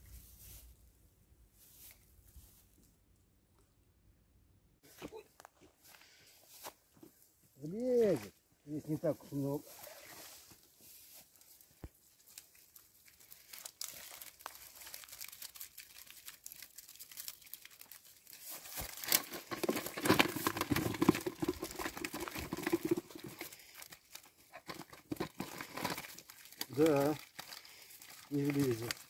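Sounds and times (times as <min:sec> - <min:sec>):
mesh net rustling and crackling: 0:11.2 - 0:29.0.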